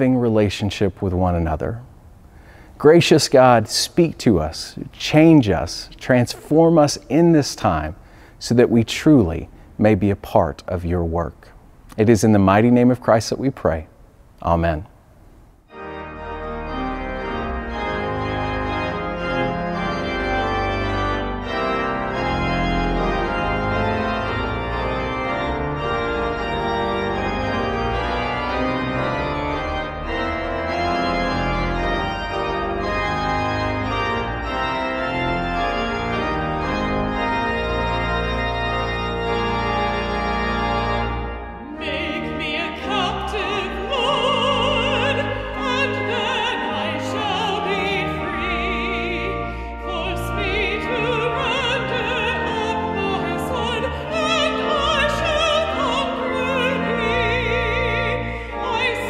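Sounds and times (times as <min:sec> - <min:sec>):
pipe organ playing chords: 0:02.4 - 0:11.2, 0:15.7 - 0:59.0
soprano singing: 0:41.6 - 0:59.0.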